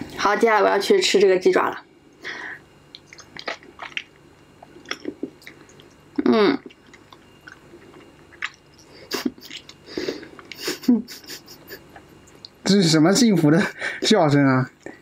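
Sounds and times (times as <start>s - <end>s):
person chewing crunchy food: 2.9s - 10.7s
person making vocal sound: 6.2s - 6.7s.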